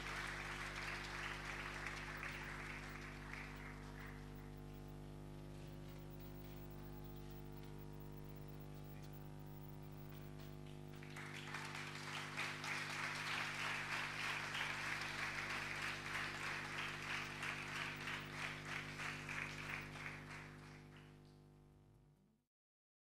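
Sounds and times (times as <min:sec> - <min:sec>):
audience applauding: 0:00.0 - 0:04.8, 0:09.5 - 0:21.4
steady electrical hum: 0:00.0 - 0:22.3.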